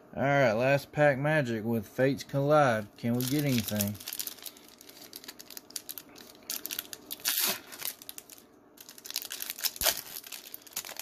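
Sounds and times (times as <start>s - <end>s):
foil wrapper crinkling and tearing: 3.0s - 11.0s.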